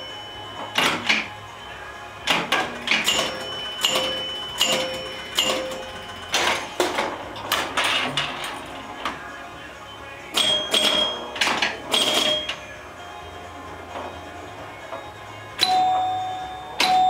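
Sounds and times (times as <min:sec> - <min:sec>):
pinball chime rings: 0:00.0 - 0:08.7, 0:10.3 - 0:17.0
pinball flippers and relays clacking: 0:00.6 - 0:01.4, 0:02.2 - 0:09.2, 0:10.3 - 0:12.7, 0:16.8 - 0:17.0.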